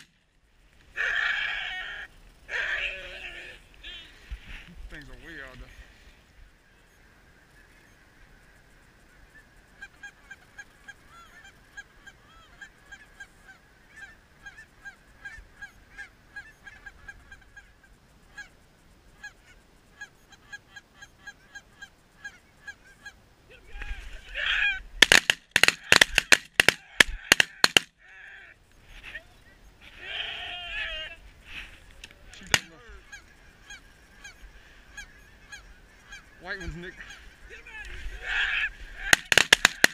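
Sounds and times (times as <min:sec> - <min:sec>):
geese honking: 0:07.1 - 0:39.9
shotgun blasts: 0:25.0 - 0:27.9, 0:39.1 - 0:39.9.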